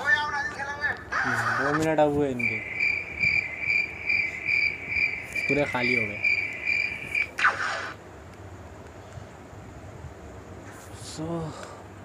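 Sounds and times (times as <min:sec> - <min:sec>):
cricket chirping: 0:02.3 - 0:07.3.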